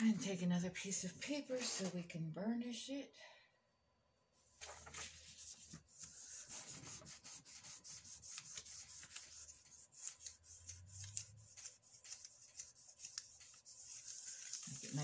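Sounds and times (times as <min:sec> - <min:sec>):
paper rubbing strokes: 0:04.6 - 0:15.0.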